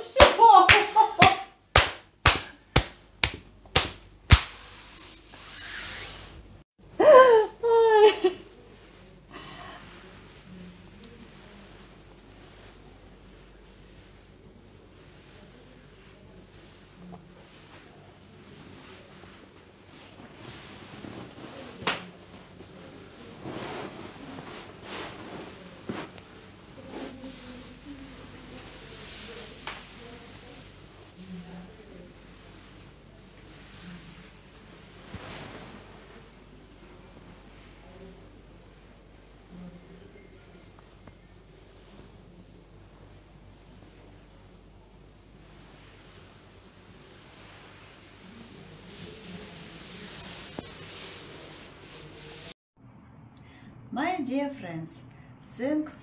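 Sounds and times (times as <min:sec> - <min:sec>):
soft steady hiss: 0:00.0 - 0:52.6
hands rubbing and rustling: 0:00.1 - 0:06.4, 0:15.2 - 0:30.8, 0:32.4 - 0:36.3, 0:47.2 - 0:52.6
hands slapping on skin: 0:00.2 - 0:04.7.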